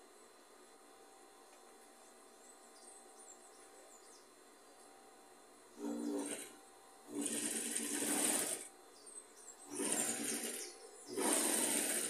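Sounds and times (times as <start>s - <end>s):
sewing machine stitching: 5.8s - 8.7s, 9.7s - 12.0s.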